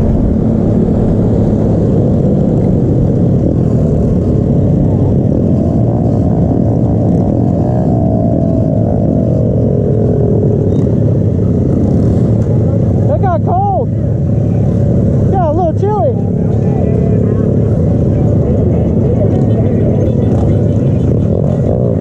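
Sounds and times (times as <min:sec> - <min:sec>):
pitbike engines running: 0:00.0 - 0:22.0.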